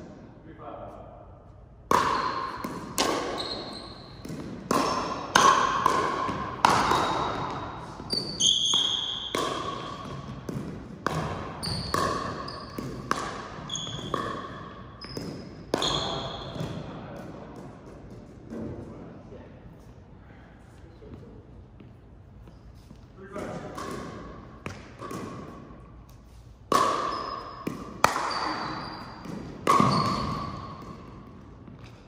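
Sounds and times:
ball hits echoing in hall: 0.0 - 19.1, 23.1 - 32.0
shoe squeaks: 3.2 - 4.2, 7.9 - 10.2, 11.6 - 13.0, 13.6 - 16.6, 22.3 - 23.0, 27.0 - 27.6, 28.2 - 31.0.

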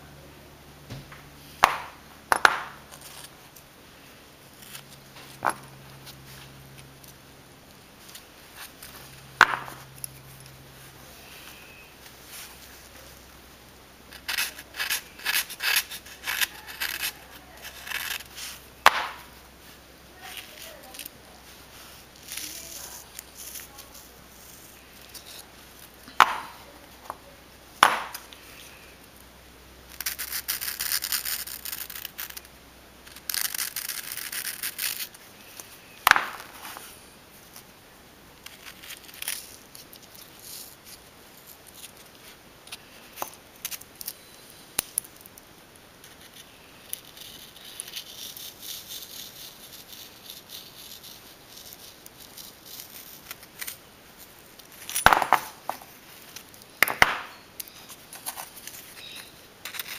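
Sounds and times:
hand tool scraping cuttlefish bone: 14.1 - 18.6, 29.9 - 32.5, 33.1 - 35.7, 57.6 - 59.9.

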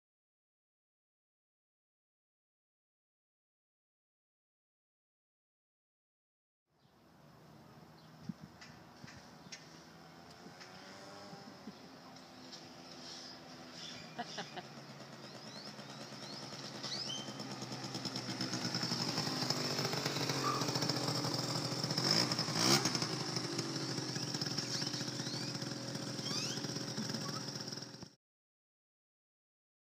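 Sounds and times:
scooter engine passing by: 7.8 - 28.2.

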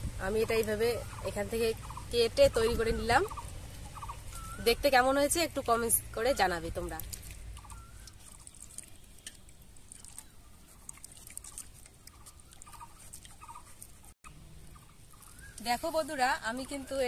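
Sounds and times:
faint bird calls: 3.1 - 4.8, 7.6 - 8.3.

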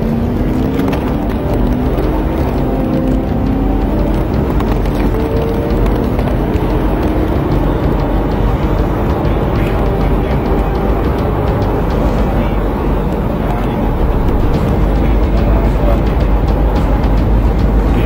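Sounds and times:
car road and engine noise: 0.0 - 18.0.

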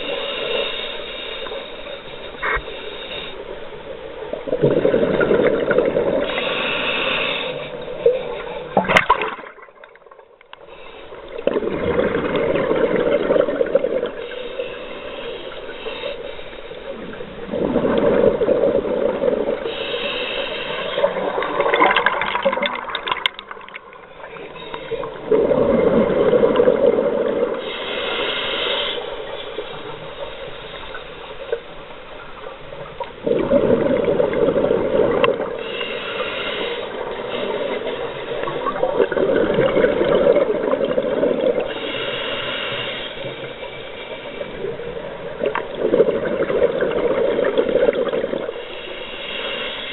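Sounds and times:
regulator hiss: 0.0 - 4.4, 6.2 - 8.8, 14.1 - 17.4, 19.6 - 21.7, 27.5 - 33.0, 35.4 - 39.0, 41.6 - 45.6, 48.4 - 49.9
exhaled air bubbles gurgling: 4.3 - 6.8, 7.8 - 10.3, 11.3 - 14.3, 16.9 - 19.9, 20.7 - 27.8, 32.7 - 48.6.

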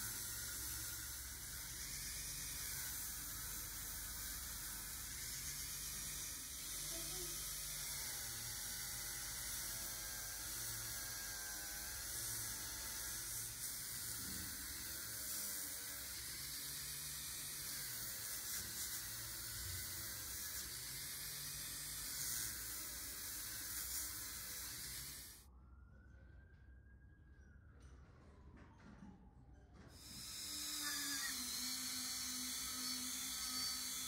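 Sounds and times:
small electric motor running: 0.0 - 25.4, 30.0 - 34.0
hiss: 11.9 - 25.4.

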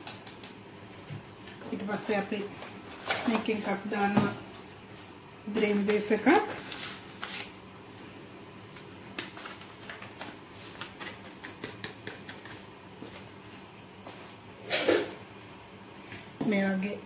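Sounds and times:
packet crinkling and rustling: 5.9 - 11.2.

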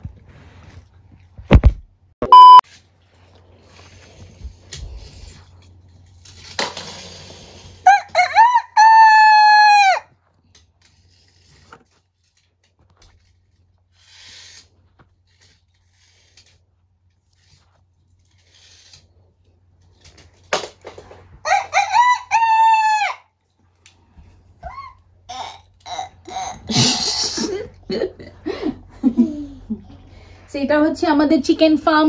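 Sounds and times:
rooster crowing: 7.8 - 10.1, 21.4 - 23.3.

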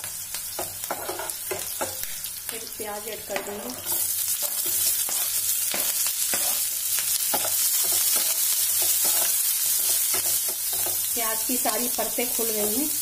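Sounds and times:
onions sizzling in oil: 0.0 - 13.0
spatula scraping: 3.4 - 11.0.

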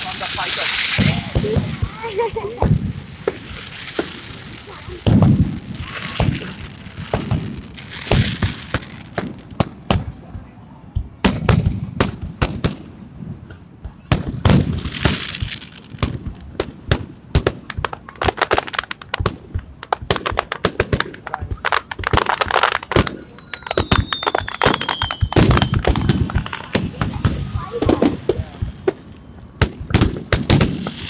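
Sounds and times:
fireworks banging and crackling: 0.0 - 31.0
firework whistle falling in pitch: 22.6 - 25.9.

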